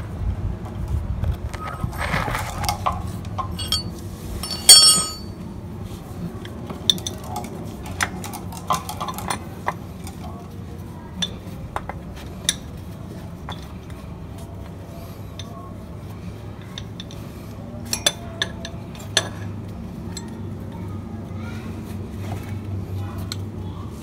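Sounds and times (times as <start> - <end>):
hand tools clinking on metal: 1.8 - 5.4, 16.6 - 19.5
loud ringing metallic clang: 3.5 - 5.3.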